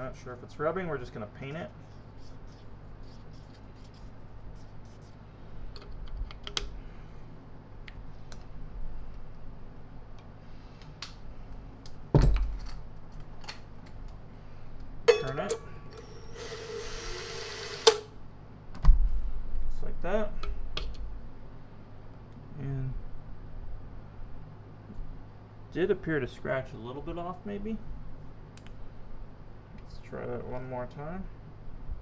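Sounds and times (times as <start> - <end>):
cordless drill whirring: 16.0 - 18.0.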